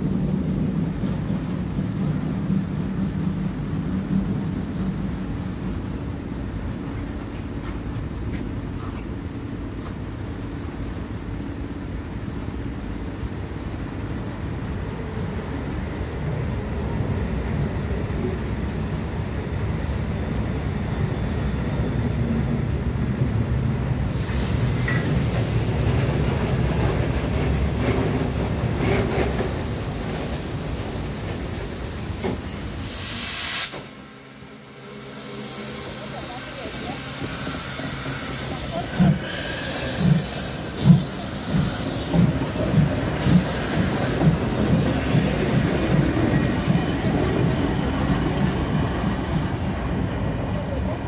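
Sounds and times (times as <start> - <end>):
train wheels rumbling on rails: 0.0 - 51.0
loud steam hissing: 20.2 - 51.0.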